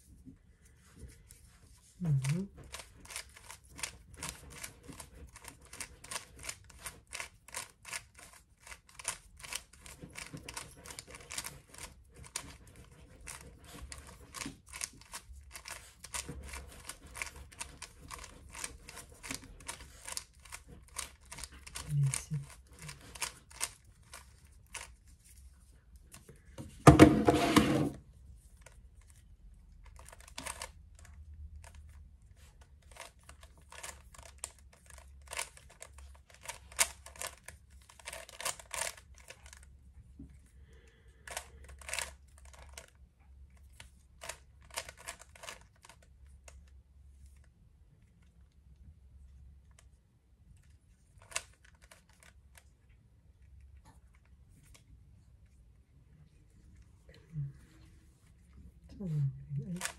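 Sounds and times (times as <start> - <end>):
puzzle cube clicking turns: 2.2 - 25.0, 29.8 - 32.0, 32.8 - 39.7, 41.2 - 46.7, 51.1 - 52.7.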